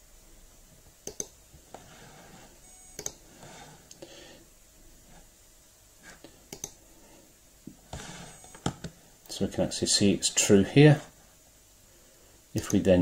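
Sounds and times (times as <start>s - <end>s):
faint room noise: 0.0s - 13.0s
computer mouse clicking: 1.0s - 1.4s, 3.0s - 3.2s, 6.5s - 6.8s.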